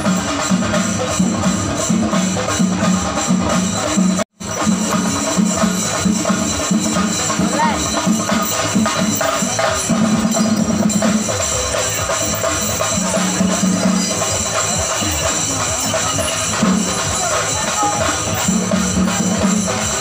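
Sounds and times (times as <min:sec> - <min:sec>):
jingling cymbals: 0:00.0 - 0:20.0
procession drums: 0:04.5 - 0:20.0.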